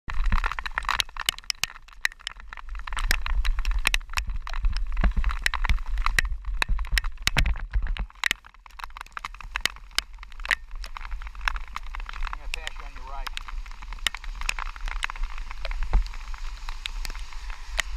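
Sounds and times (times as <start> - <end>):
raindrops ticking on camera housing: 0.1 - 17.9
wind rumble on microphone: 0.1 - 17.9
tyres hissing on wet path: 9.4 - 17.9.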